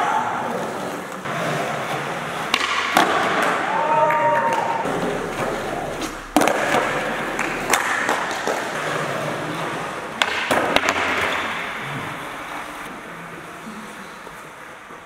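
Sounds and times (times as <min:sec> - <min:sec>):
skateboard wheels rolling: 0:00.0 - 0:15.0
skateboard clacking on floor: 0:00.8 - 0:12.9.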